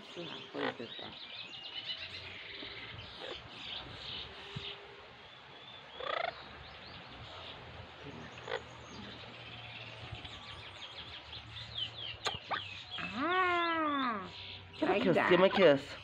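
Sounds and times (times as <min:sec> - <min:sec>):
parrot chirping: 0:12.2 - 0:14.0.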